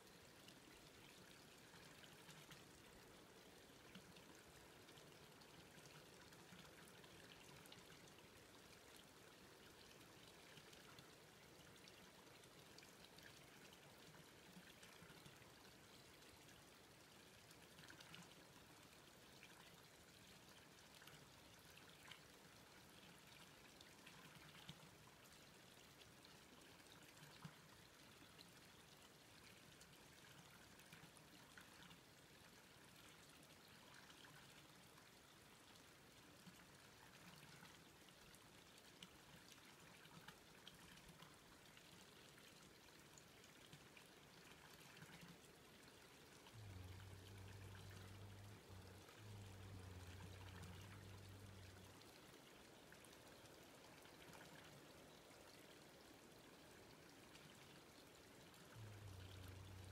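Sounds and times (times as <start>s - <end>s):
soft forest hiss: 0.0s - 59.9s
low hum: 46.5s - 52.0s.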